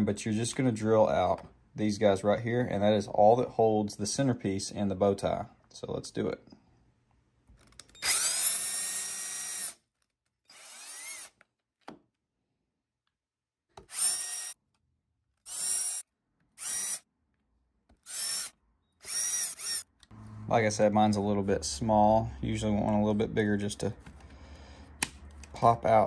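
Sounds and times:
cordless drill drilling: 8.0 - 9.8, 10.5 - 11.4, 13.8 - 14.6, 15.5 - 16.0, 16.6 - 17.0, 18.0 - 19.9.

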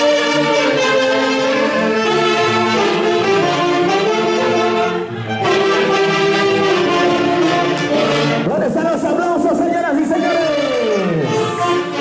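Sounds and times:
band music with wind instruments: 0.0 - 12.0.

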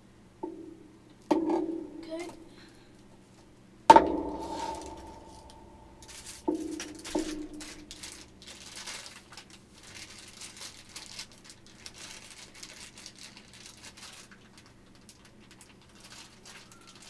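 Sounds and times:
plastic bag crinkling: 4.2 - 17.0.

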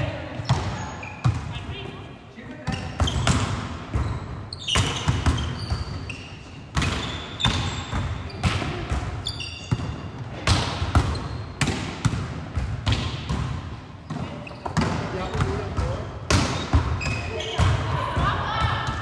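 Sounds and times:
sneaker squeaks on wood: 0.4 - 1.6, 2.7 - 8.6, 9.2 - 10.2, 11.0 - 11.6, 14.0 - 15.5, 16.4 - 17.8
volleyballs being struck: 6.7 - 19.0.

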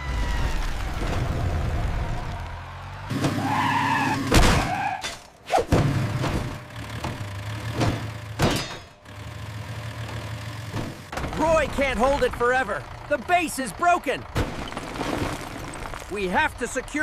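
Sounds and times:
cartoon skid screech: 3.4 - 5.6.

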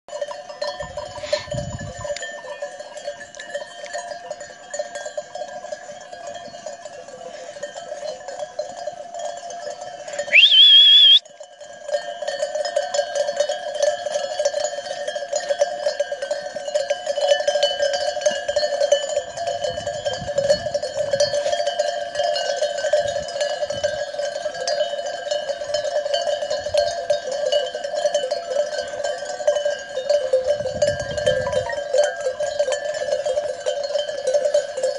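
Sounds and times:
livestock bells clanking: 0.1 - 34.9
high wavering tone: 10.3 - 11.2.

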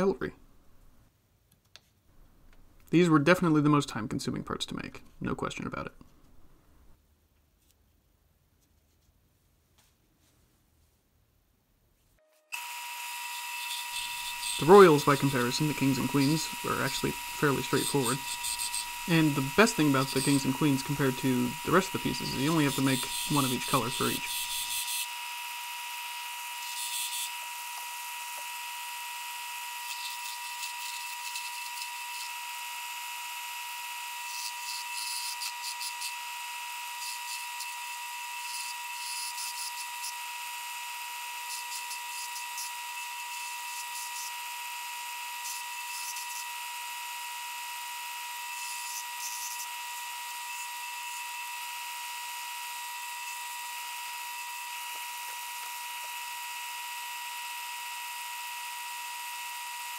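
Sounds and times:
wood lathe high whine: 12.5 - 59.9.

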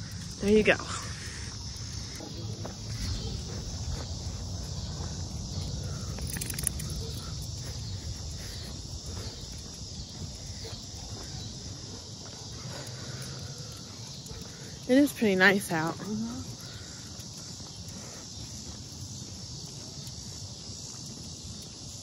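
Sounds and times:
insects chirring: 0.0 - 22.0
wind rumble on microphone: 2.6 - 11.9.

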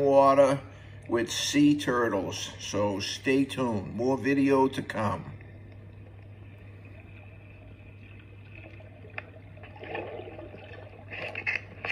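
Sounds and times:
muffled water sounds: 0.0 - 11.9
steady low hum: 0.0 - 11.9
water bubbles burbling: 5.4 - 11.9.

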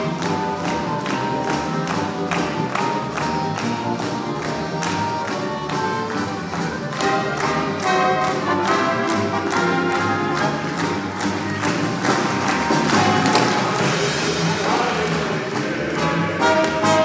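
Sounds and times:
ensemble playing dance music: 10.4 - 17.0.

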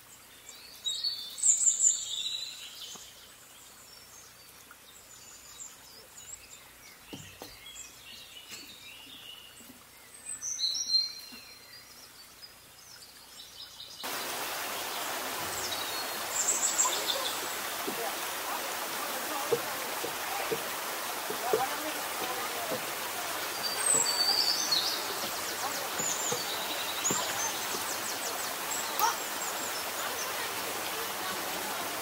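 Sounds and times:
creek running over rocks: 0.0 - 32.0
songbirds chirping: 0.0 - 32.0.

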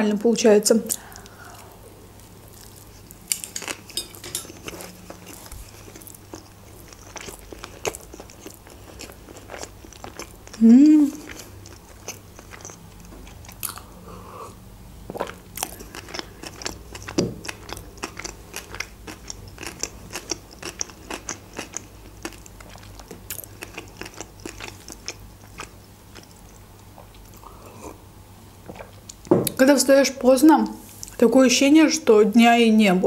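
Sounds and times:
faint steady hum: 0.0 - 33.0
chewing with wet mouth clicks: 2.5 - 13.9, 15.1 - 27.5.

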